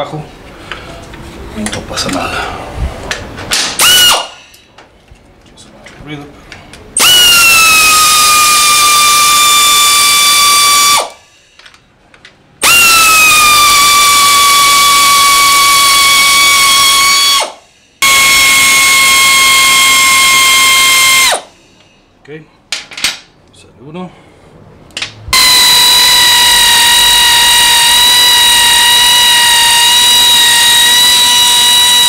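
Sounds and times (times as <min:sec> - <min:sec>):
power ratchet whining: 0:03.5 - 0:04.6, 0:07.0 - 0:11.2, 0:12.6 - 0:21.5, 0:25.3 - 0:32.0.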